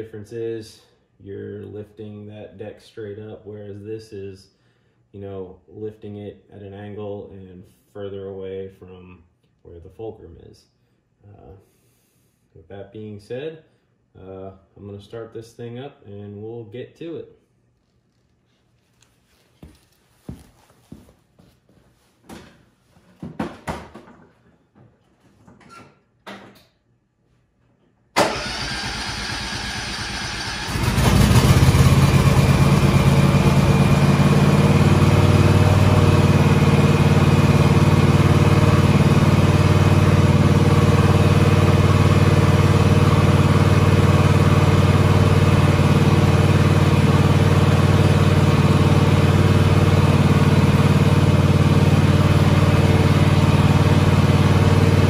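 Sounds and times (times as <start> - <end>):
engine starter cranking: 28.2 - 32.0.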